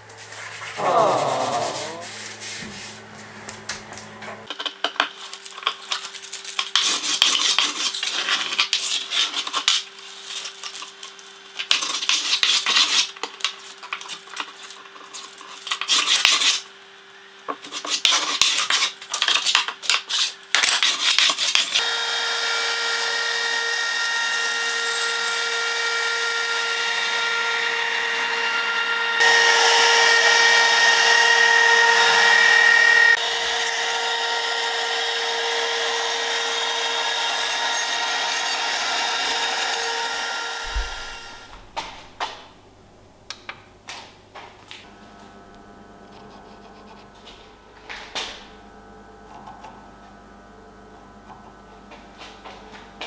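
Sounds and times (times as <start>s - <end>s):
hand tool scraping wood: 0.1s - 3.2s, 5.1s - 10.6s, 11.6s - 16.6s, 17.6s - 21.8s
trim router whining: 21.8s - 42.8s.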